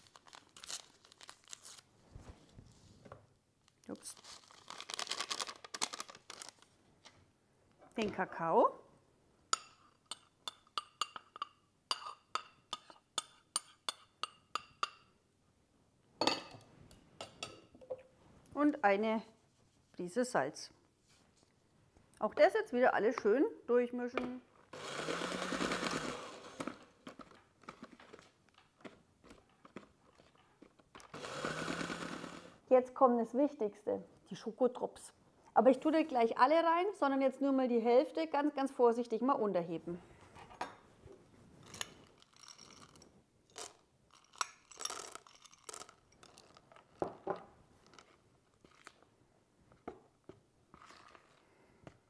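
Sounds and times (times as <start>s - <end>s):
electric hand mixer winding down: 24.8s - 26.7s, 31.2s - 32.5s.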